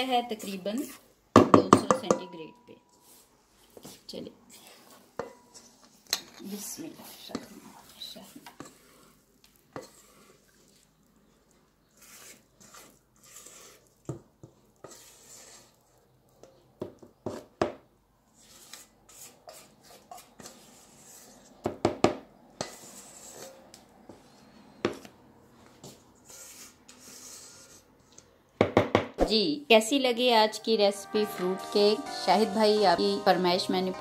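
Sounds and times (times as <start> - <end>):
utensil scraping bowl and tin: 4.5 - 10.7, 11.8 - 15.8, 18.4 - 21.6, 22.6 - 23.7.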